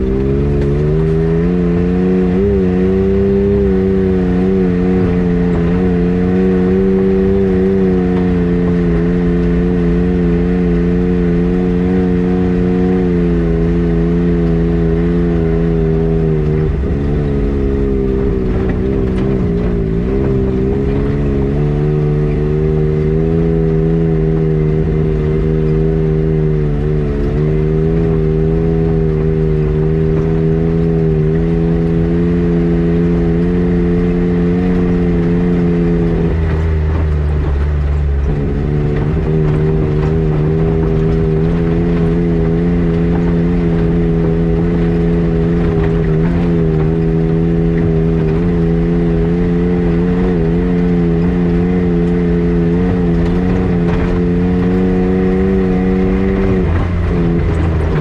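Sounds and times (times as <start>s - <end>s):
road noise: 0.0s - 58.0s
vehicle engine droning: 0.0s - 58.0s.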